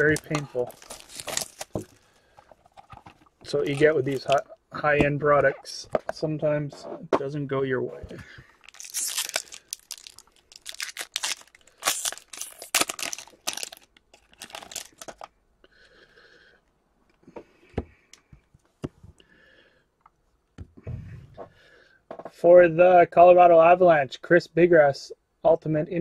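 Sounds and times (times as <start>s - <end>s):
foil wrapper tearing and crinkling: 0.0s - 2.0s, 3.5s - 4.4s, 8.6s - 15.3s
handling of cards: 0.0s - 4.6s, 8.0s - 15.3s.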